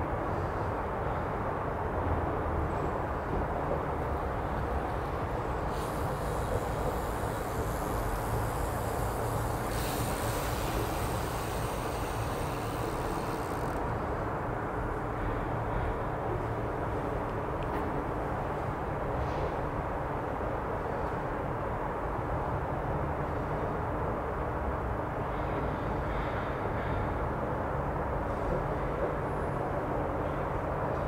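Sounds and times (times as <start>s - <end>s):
high hiss: 5.7s - 13.8s.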